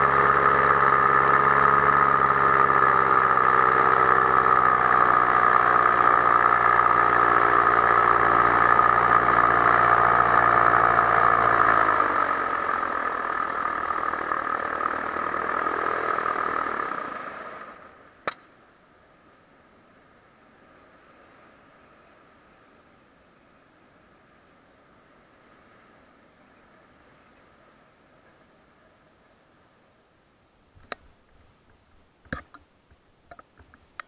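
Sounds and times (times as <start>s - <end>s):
paramotor engine and propeller: 0.0s - 29.9s
sharp click: 18.2s - 18.5s.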